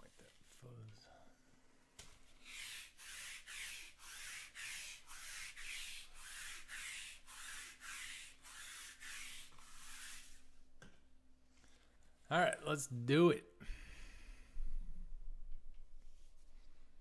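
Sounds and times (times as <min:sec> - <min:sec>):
roller rubbing over cloth: 0:02.4 - 0:10.6.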